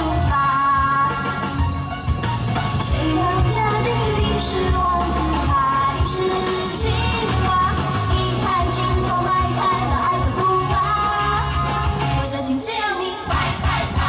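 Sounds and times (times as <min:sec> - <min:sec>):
woman singing into a microphone: 0:00.0 - 0:01.4, 0:02.8 - 0:14.0
pop backing music with beat: 0:00.0 - 0:14.0.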